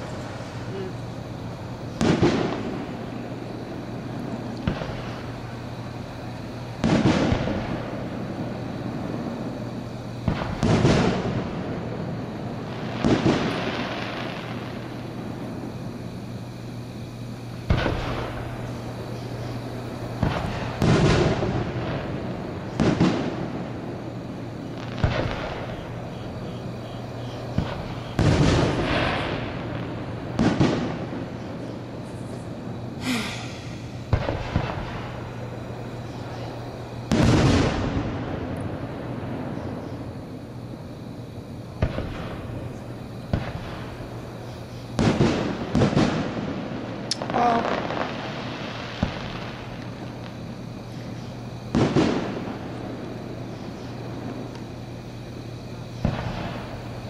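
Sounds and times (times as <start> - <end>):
fireworks bursting: 0.0 - 57.0
firework thumps: 17.2 - 19.1, 33.2 - 35.3.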